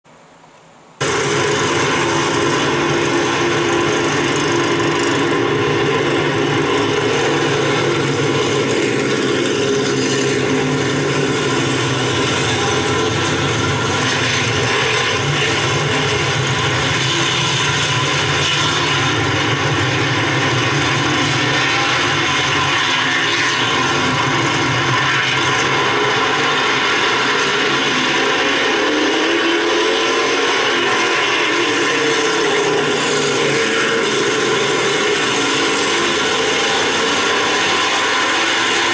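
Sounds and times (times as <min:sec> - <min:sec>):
racing car engines drone: 0:01.0 - 0:38.9.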